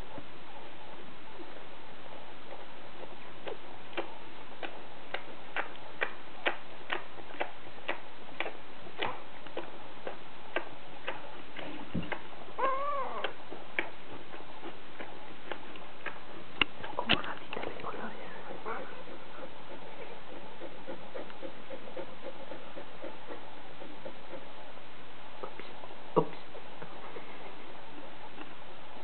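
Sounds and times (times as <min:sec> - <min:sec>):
puppy whimper: 0:12.6 - 0:13.4
puppies eating clicks and taps: 0:13.2 - 0:23.4.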